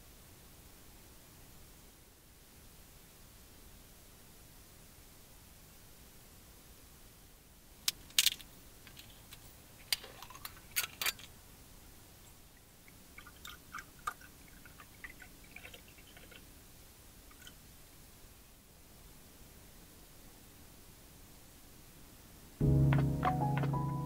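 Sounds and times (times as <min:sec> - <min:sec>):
liquid pouring into a glass: 0:13.1 - 0:16.4, 0:17.3 - 0:17.6.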